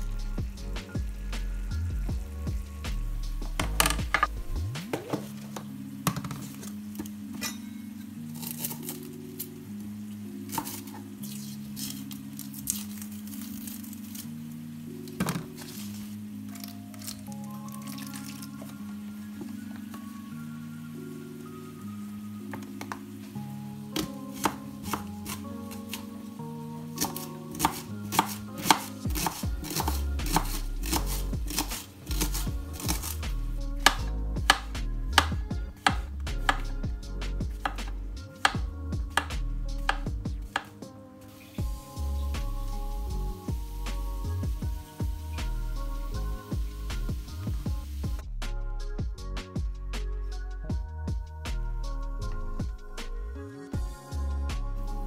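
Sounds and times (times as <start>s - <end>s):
soft background music: 0.0s - 55.0s
knife peeling shallot on board: 27.0s - 36.7s.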